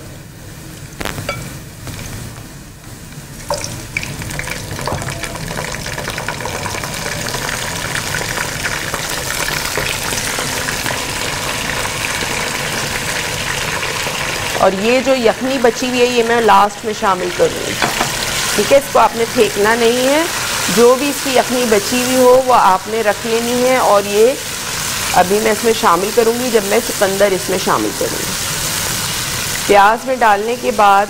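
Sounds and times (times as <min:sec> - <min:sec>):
onions sizzling in oil: 0:03.2 - 0:31.0
knocks in pan: 0:04.8 - 0:05.7, 0:17.8 - 0:18.3.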